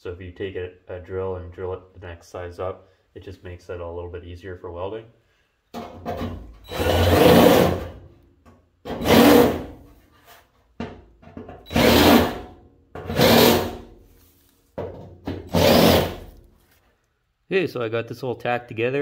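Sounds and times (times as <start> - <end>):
drill cutting through sheet steel: 6.7 - 8.0, 8.9 - 9.7, 11.7 - 12.5, 13.1 - 13.8, 15.5 - 16.4.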